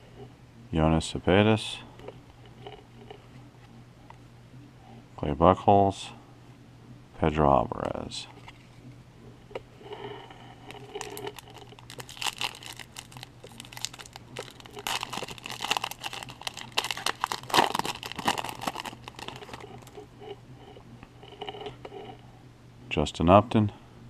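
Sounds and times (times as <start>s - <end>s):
foil wrapper crinkling and tearing: 10.7s - 20.0s.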